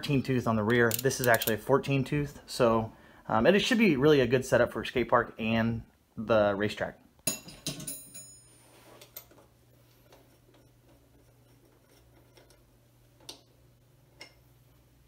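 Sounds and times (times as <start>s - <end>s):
tools clicking and tapping: 0.7s - 1.6s, 7.2s - 8.4s, 10.1s - 13.6s, 14.2s - 14.5s.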